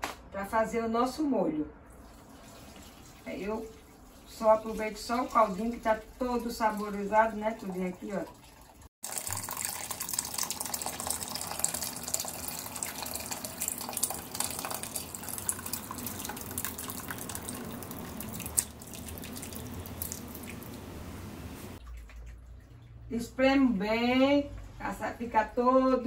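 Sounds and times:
broth pouring through strainer: 0:08.4 - 0:20.7.

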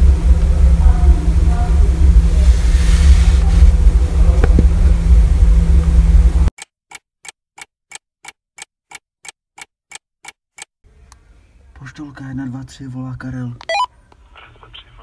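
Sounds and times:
loud low rumble: 0:00.0 - 0:06.5.

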